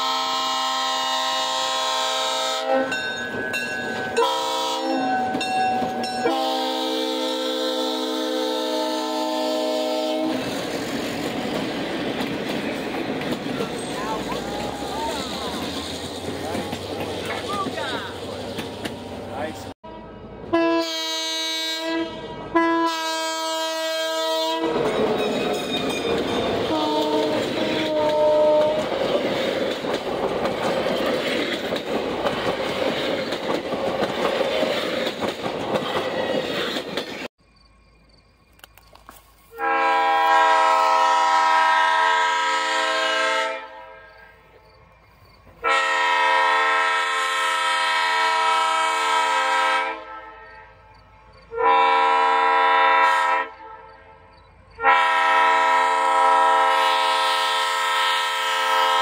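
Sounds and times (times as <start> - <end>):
train air horn: 0.0 - 3.1, 4.1 - 5.2, 6.2 - 10.5, 19.8 - 24.9, 26.6 - 29.0, 39.5 - 44.5, 45.6 - 50.9, 51.5 - 59.0
train rumbling and clattering by: 0.0 - 20.6, 23.2 - 43.4, 44.1 - 50.1.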